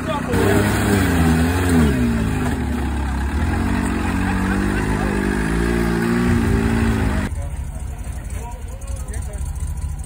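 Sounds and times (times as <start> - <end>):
diesel engine revving under load: 0.0 - 7.3.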